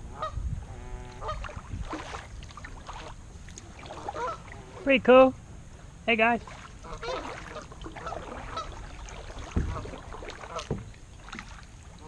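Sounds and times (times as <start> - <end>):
low wind rumble: 0.0 - 12.0
paddle blades splashing: 1.0 - 5.4, 6.0 - 12.0
water slapping hull: 1.1 - 4.9, 6.3 - 12.0
low thuds: 8.8 - 11.5.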